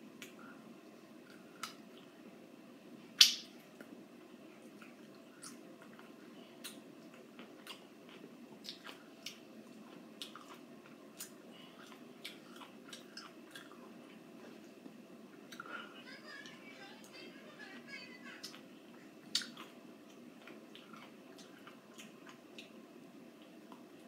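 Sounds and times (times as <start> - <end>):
wet mouth clicks and smacks: 3.2 - 3.9, 19.3 - 19.7
person chewing a lime: 4.6 - 14.2, 19.2 - 22.8.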